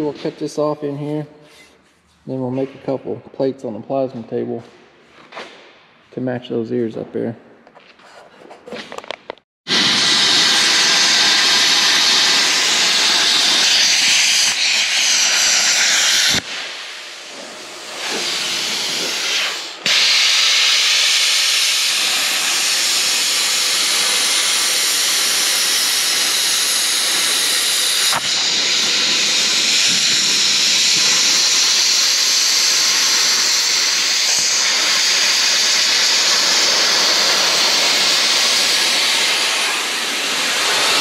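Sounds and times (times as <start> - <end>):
plasma cutter hissing: 9.7 - 41.0.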